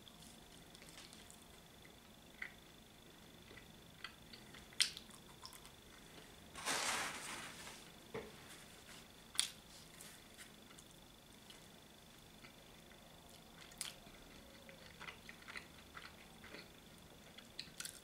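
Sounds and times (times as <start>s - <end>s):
faint high whine: 0.0s - 15.2s
short rustle: 6.6s - 7.9s.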